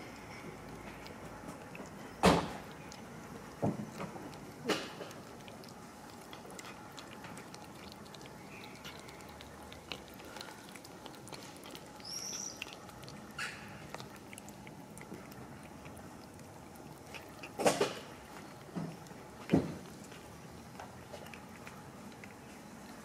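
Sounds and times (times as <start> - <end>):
cats chewing and lapping: 0.0 - 23.0.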